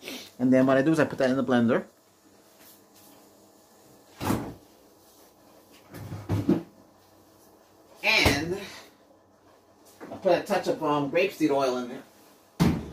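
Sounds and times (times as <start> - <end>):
cupboard door knocking shut: 12.6 - 12.9.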